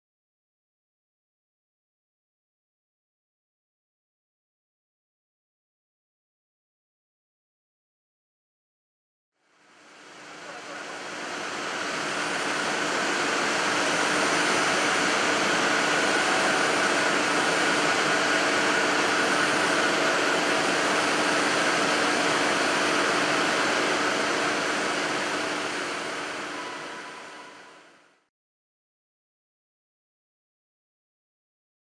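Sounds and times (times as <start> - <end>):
industrial machinery humming: 10.0 - 28.0.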